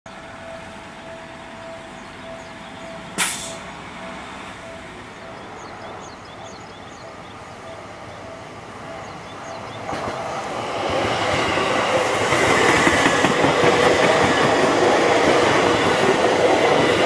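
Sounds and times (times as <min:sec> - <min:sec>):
level crossing alarm dinging: 0:00.3 - 0:09.8
sharp hiss: 0:03.2 - 0:03.7.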